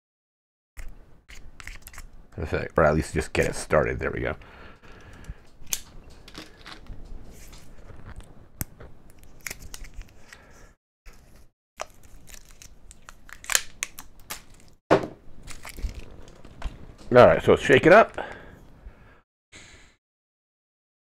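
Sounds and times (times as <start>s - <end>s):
plastic seal crinkling and crackling: 5.0s - 10.4s, 11.2s - 14.8s, 15.4s - 17.2s.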